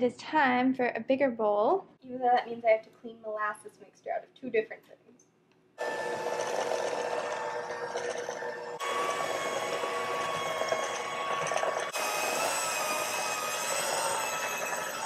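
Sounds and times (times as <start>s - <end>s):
electric hand mixer whining: 5.8s - 15.0s.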